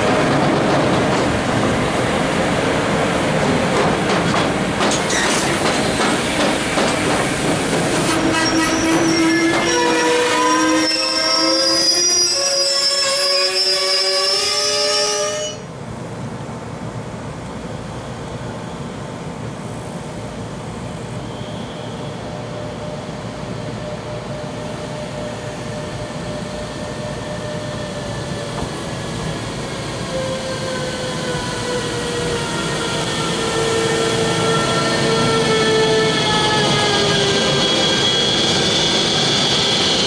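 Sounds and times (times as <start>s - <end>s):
locomotive rail rumble and whine: 0.0s - 40.0s
high squeal of freight train: 4.9s - 15.8s, 17.9s - 19.1s, 20.0s - 40.0s.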